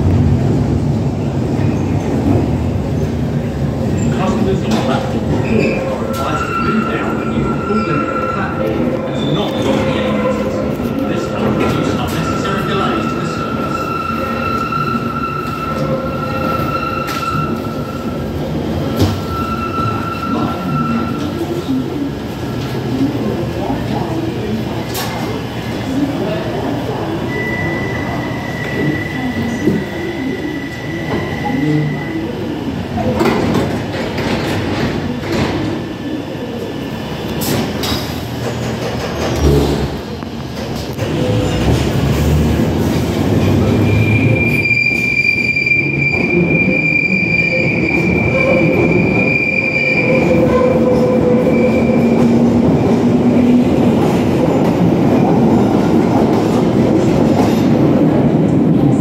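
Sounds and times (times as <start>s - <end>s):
train rumble: 0.0s - 59.0s
high wheel squeal: 5.5s - 18.2s, 18.8s - 21.3s, 43.6s - 52.2s
train doors closing with knocks: 9.4s - 20.1s, 33.0s - 35.9s, 37.3s - 42.2s.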